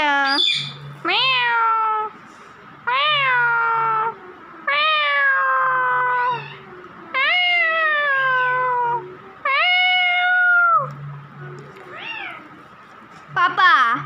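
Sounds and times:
parakeet chirps: 0.2s - 0.9s
parakeet imitating cat meow: 0.3s - 2.2s, 2.9s - 10.9s, 11.9s - 12.6s.

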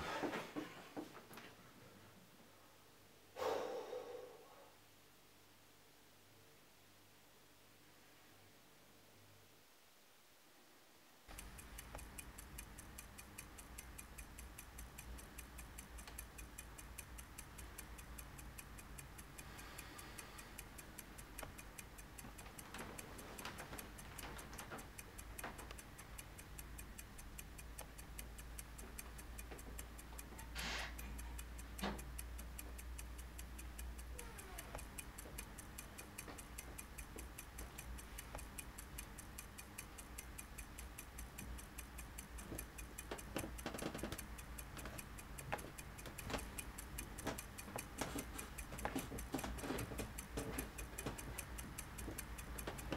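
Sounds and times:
clock ticking: 11.3s - 52.9s.

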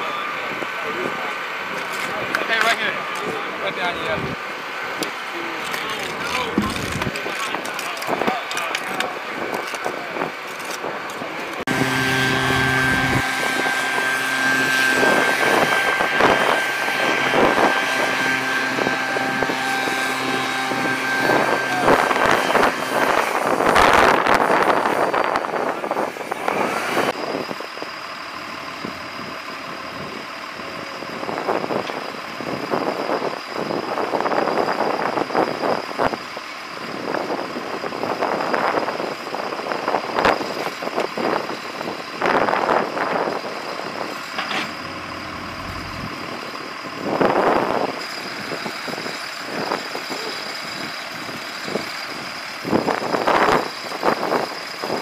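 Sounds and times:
heavy machinery engine running: 0.1s - 55.0s
leaf blower: 11.5s - 27.2s.

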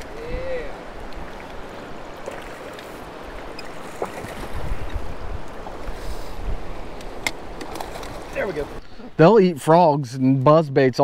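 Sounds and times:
river water rushing: 0.0s - 8.8s.

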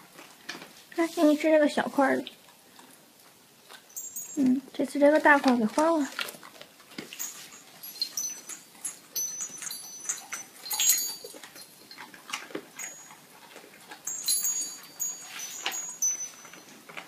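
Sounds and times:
dog crunching a treat: 0.0s - 1.0s, 2.0s - 17.0s
collar ornaments jingling: 3.7s - 17.0s.

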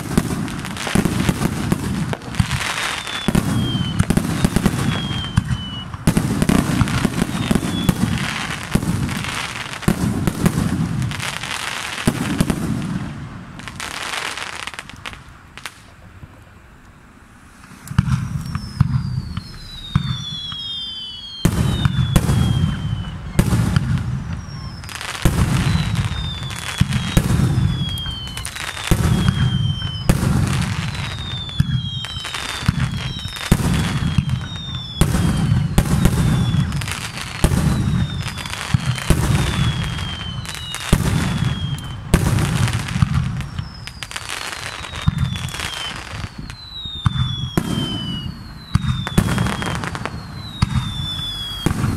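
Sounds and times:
fireworks bangs: 0.0s - 16.4s, 17.3s - 51.9s
whistling fireworks: 0.0s - 51.9s.

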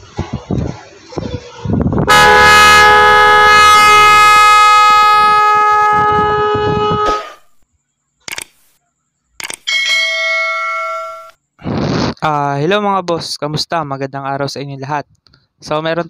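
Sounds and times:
electric horn blast: 2.1s - 7.5s.

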